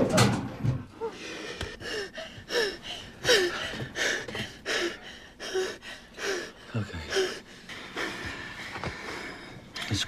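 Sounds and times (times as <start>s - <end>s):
girl gasping and whimpering: 1.0s - 8.2s.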